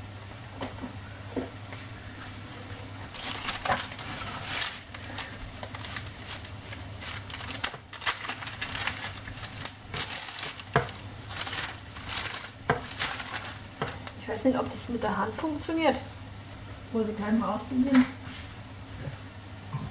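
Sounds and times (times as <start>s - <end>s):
baking paper crinkling: 2.9s - 15.6s.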